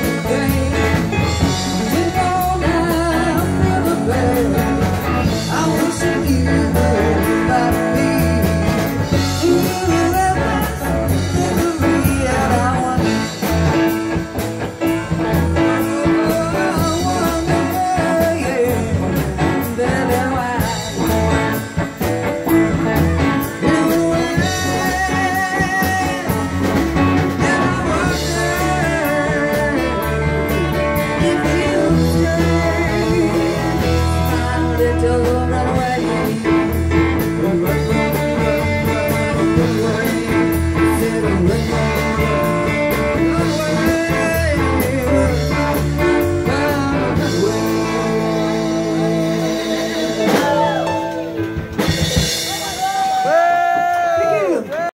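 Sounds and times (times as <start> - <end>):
woman singing: 0.0 - 13.4, 27.3 - 36.7
electric guitar: 0.0 - 54.9
stage piano: 0.0 - 54.9.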